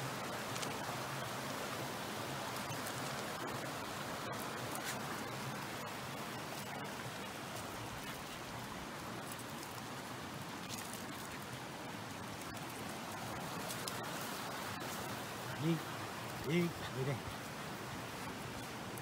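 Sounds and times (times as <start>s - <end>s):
mountain stream rushing: 0.0s - 19.0s.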